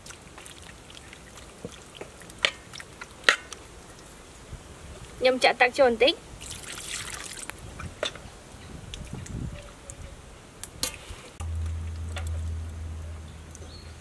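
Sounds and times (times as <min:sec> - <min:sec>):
meat simmering in water: 0:00.0 - 0:05.2, 0:06.2 - 0:09.9
steady low rumble: 0:11.4 - 0:14.0.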